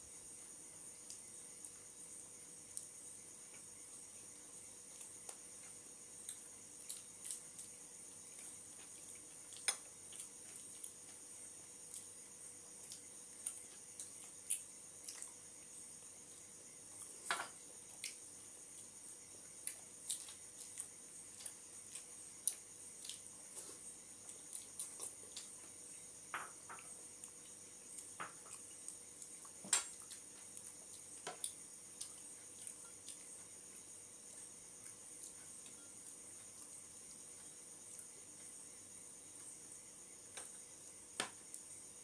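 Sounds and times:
chewing: 0:06.2 - 0:11.2, 0:11.8 - 0:17.2, 0:19.5 - 0:25.7, 0:26.8 - 0:33.5.

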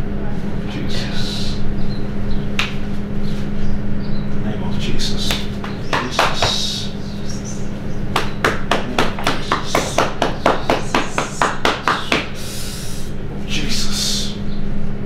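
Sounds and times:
sharp hand smacks: 0:02.6 - 0:02.8, 0:05.2 - 0:06.6, 0:08.2 - 0:12.3.

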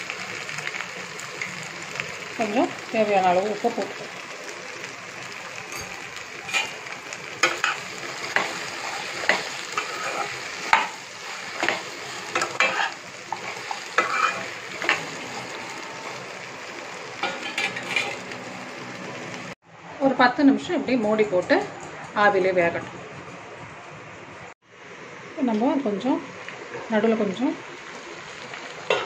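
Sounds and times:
food sizzling in oil: 0:00.0 - 0:19.6, 0:25.3 - 0:29.0
metal spatula scraping a pan: 0:05.7 - 0:16.2, 0:17.2 - 0:18.3.

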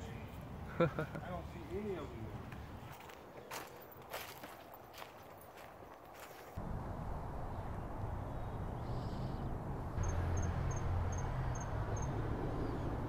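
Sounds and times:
low outdoor rumble: 0:06.6 - 0:13.0.

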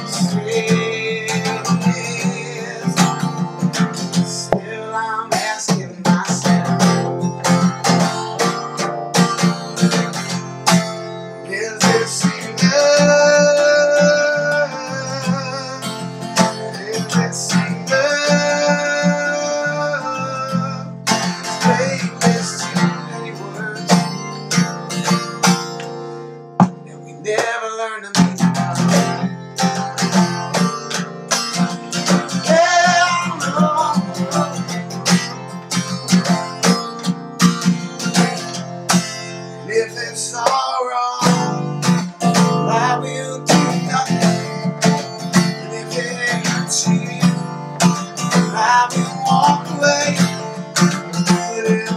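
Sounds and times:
acoustic guitar strumming: 0:00.0 - 0:51.9
person singing long notes: 0:11.5 - 0:24.0, 0:32.1 - 0:34.9.

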